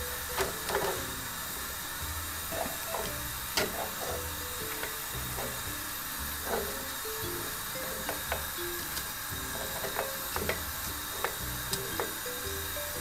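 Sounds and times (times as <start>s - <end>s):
steady low hiss: 0.0s - 13.0s
metal tongs clinking on pot: 7.9s - 12.2s.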